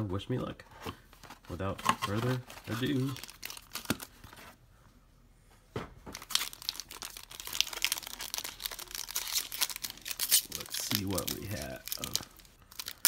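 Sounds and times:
foil wrapper tearing and crinkling: 6.2 - 13.0.

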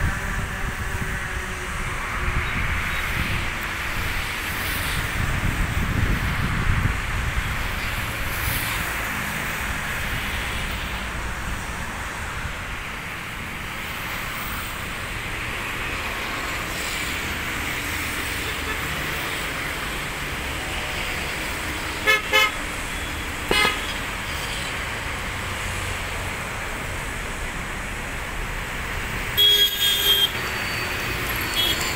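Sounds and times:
steady rushing background noise: 0.0 - 29.4
vehicle horn beeping: 22.0 - 24.0, 29.4 - 31.9.

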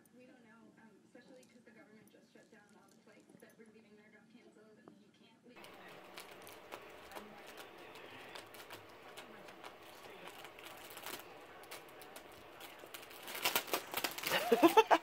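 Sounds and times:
plastic package crinkling: 5.6 - 15.0.

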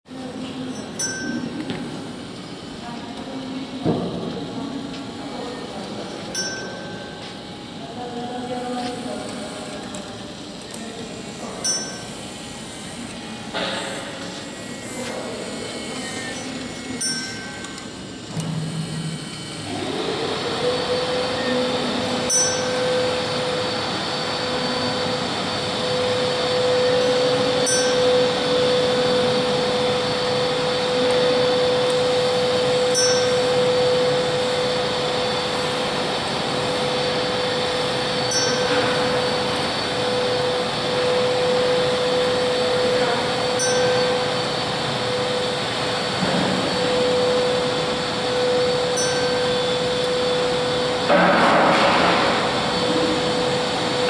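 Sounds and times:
motor whine: 0.1 - 54.0.

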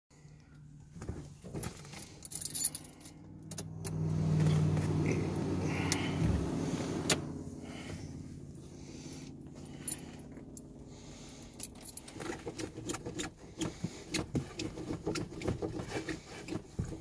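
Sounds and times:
keys jangling: 1.6 - 3.7, 11.6 - 12.4
engine cranking on starter: 3.4 - 8.1.

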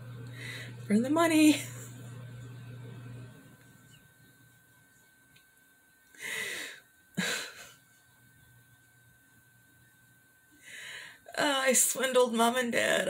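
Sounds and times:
woman laughing through nose: 7.2 - 7.8.

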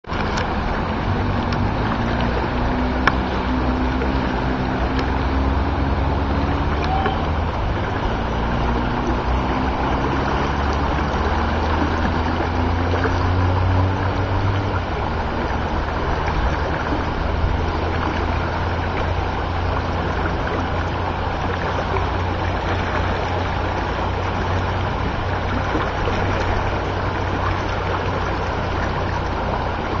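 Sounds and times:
low rumble: 0.0 - 30.0
rushing floodwater: 0.0 - 30.0
faint hum rising in pitch: 0.1 - 30.0.

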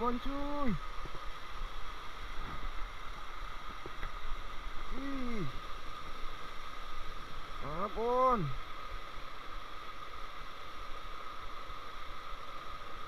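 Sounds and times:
water running through channel: 0.0 - 9.9.

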